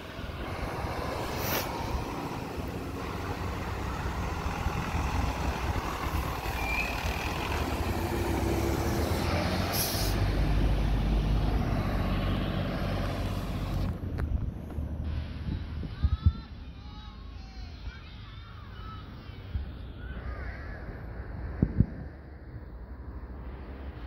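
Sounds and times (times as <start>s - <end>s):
truck diesel engine passing: 0.0s - 15.8s
air brakes hiss: 1.3s - 1.9s, 9.7s - 10.3s.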